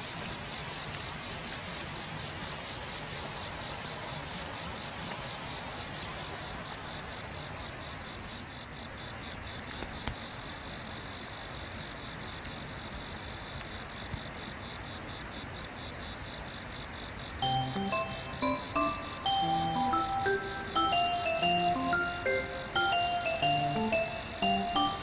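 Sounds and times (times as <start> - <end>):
pulsing insect chirp: 17.0 - 25.0
high-pitched insect trill: 17.4 - 25.0.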